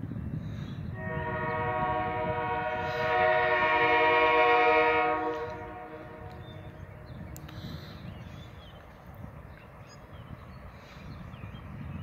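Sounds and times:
locomotive air horn blast: 1.0s - 6.4s.

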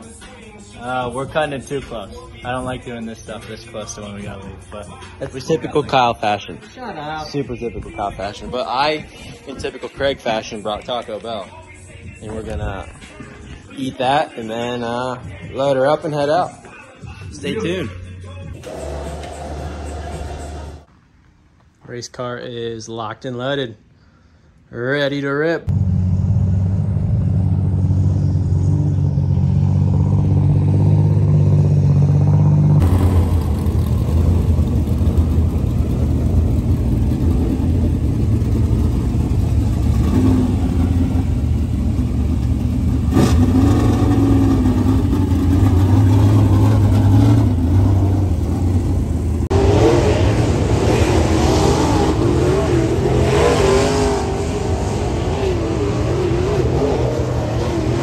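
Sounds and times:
race car engine revving: 18.6s - 20.9s, 25.7s - 58.0s.

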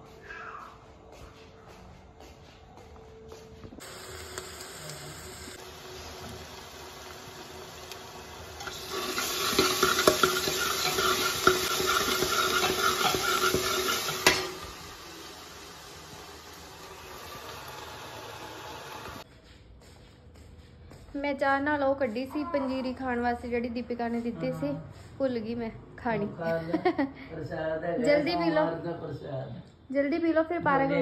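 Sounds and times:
food sizzling in oil: 3.8s - 19.2s
ladle clinking and scraping pot: 8.6s - 14.7s.

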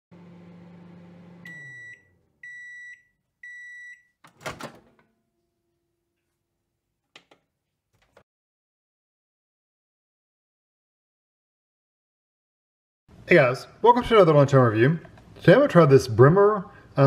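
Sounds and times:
microwave oven humming: 0.1s - 6.0s
microwave long beeps: 0.4s - 4.2s
microwave door opening clunk: 4.3s - 5.1s.

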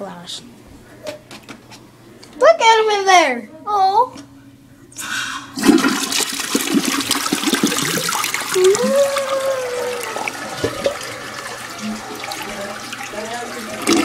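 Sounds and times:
toilet flushing: 5.0s - 14.0s.

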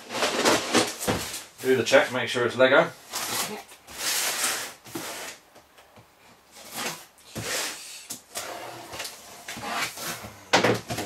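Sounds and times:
cardboard box scraping on table: 3.1s - 5.4s, 6.6s - 10.4s.

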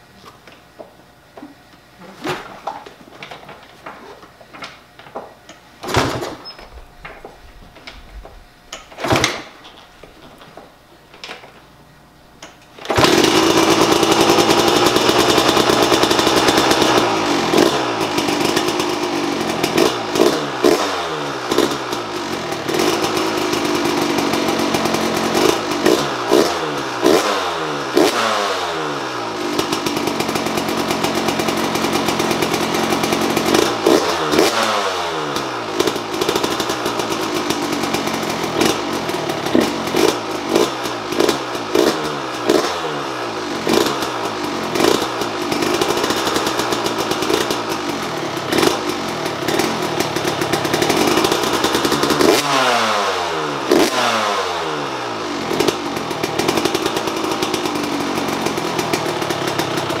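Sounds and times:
two-stroke dirt bike engine revving: 12.8s - 60.0s.

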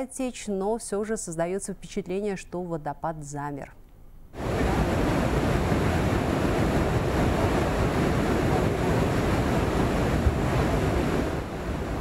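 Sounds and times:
waterfall rushing: 4.4s - 12.0s.

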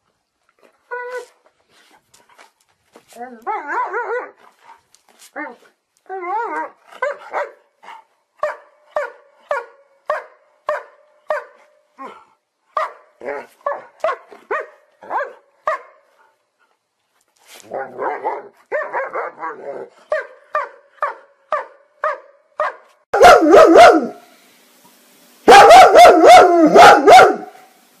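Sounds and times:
dog barking: 7.0s - 7.6s, 8.4s - 11.6s, 12.8s - 13.1s, 13.7s - 16.0s, 18.0s - 24.2s, 25.5s - 27.6s.

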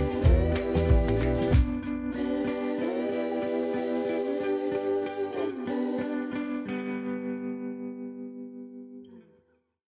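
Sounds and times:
drum and bass beat: 0.0s - 3.3s
instrumental guitar music: 0.0s - 9.6s.

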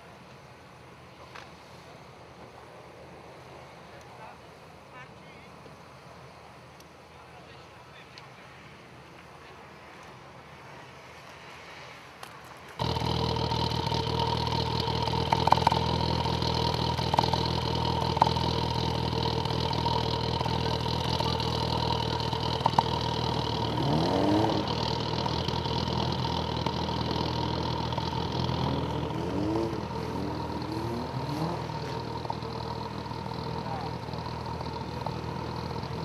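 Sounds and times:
car engine idling and revving: 12.7s - 36.0s.

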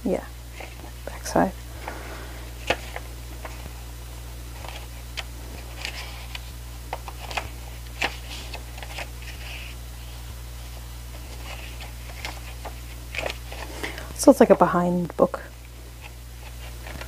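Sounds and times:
paper pages turning: 1.8s - 3.8s, 4.5s - 14.7s, 16.0s - 17.0s.

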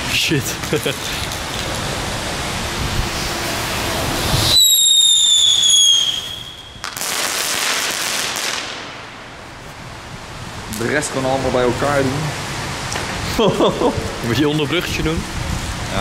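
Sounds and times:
firework hissing: 1.0s - 9.0s
firework shrill whistle: 4.2s - 8.6s.

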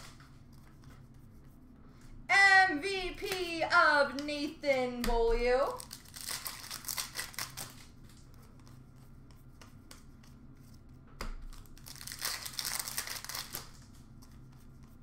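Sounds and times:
foil wrapper crinkling and tearing: 5.8s - 8.2s, 11.5s - 14.0s.

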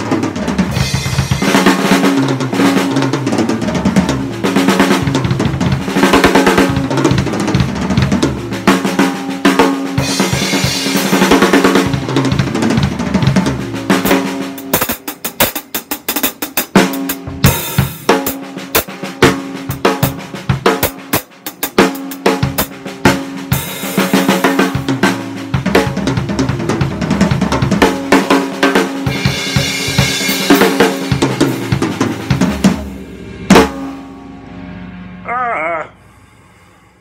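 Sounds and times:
bass drum: 0.0s - 15.5s, 29.0s - 35.2s
cymbal crashes: 31.5s - 35.3s, 36.0s - 37.0s.

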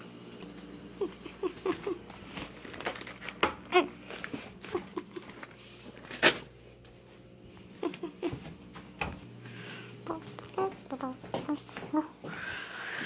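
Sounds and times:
rummaging crinkles and clicks: 1.7s - 6.9s.

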